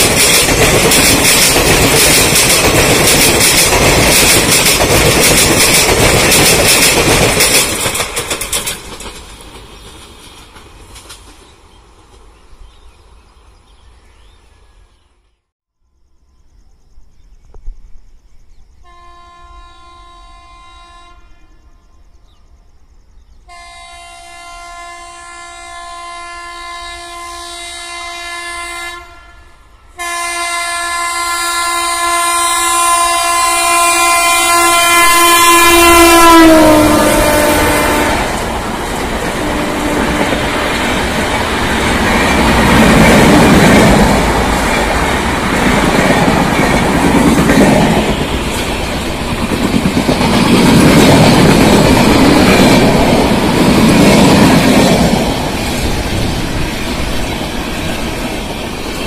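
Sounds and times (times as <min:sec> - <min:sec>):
train wheels clattering past: 0:00.0 - 0:12.6, 0:33.7 - 0:59.0
locomotive horn blasts: 0:18.9 - 0:21.6, 0:23.5 - 0:38.4, 0:39.4 - 0:40.9.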